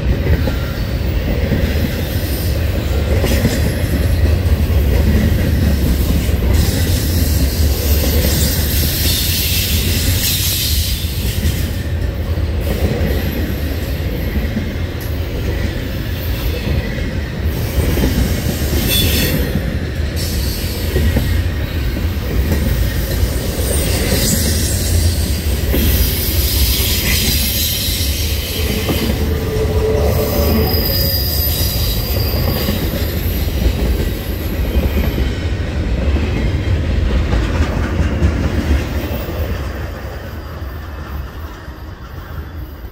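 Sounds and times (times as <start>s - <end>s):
freight train wheels rumbling: 0.0s - 42.9s
high-pitched wheel squeals: 25.9s - 33.5s.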